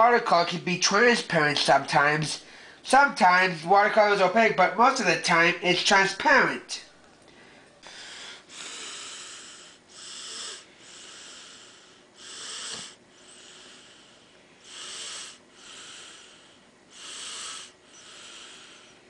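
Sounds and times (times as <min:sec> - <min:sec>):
person breathing heavily: 0:02.4 - 0:02.8, 0:07.3 - 0:19.0.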